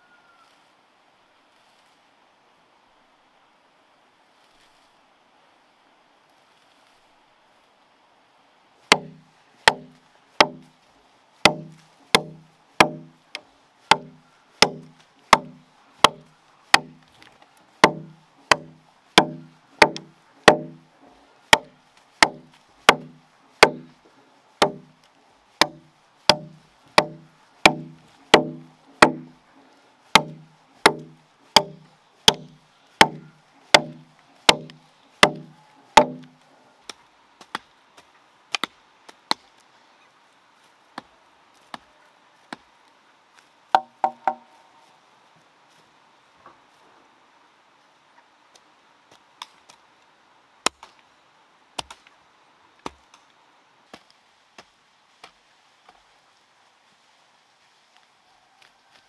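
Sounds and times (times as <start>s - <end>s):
chopping into wood: 8.9s - 10.7s, 11.4s - 13.1s, 13.9s - 17.0s, 17.8s - 20.8s, 21.5s - 23.9s, 24.6s - 24.9s, 25.6s - 29.3s, 30.1s - 36.3s, 43.8s - 44.4s.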